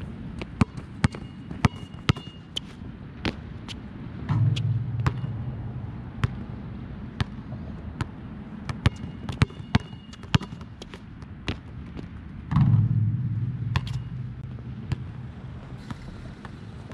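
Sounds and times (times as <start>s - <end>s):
basketball bouncing on court: 0.4s - 2.4s, 4.3s - 11.7s, 12.5s - 16.6s
low hum: 4.0s - 8.0s, 12.5s - 16.9s.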